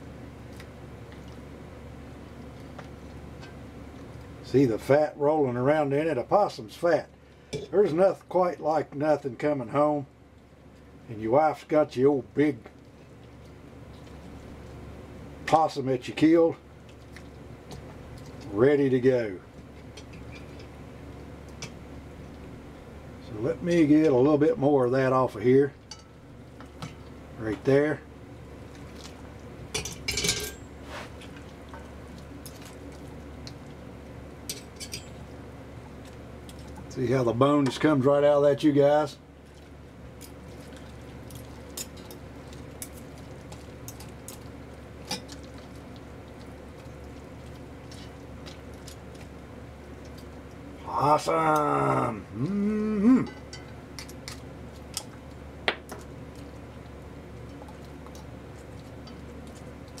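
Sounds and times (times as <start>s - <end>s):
steady low hum: 0.0s - 60.0s
wet squishing of meat: 28.6s - 29.4s, 39.4s - 50.8s.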